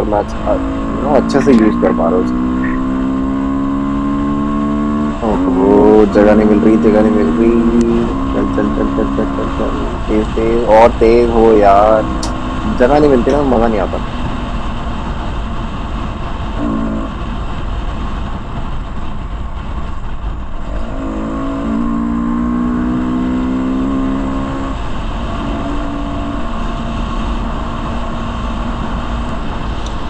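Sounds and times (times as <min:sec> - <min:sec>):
motorcycle engine under throttle: 0:00.4 - 0:15.4, 0:16.6 - 0:17.2, 0:20.7 - 0:30.0
wind rush on microphone: 0:13.9 - 0:22.5.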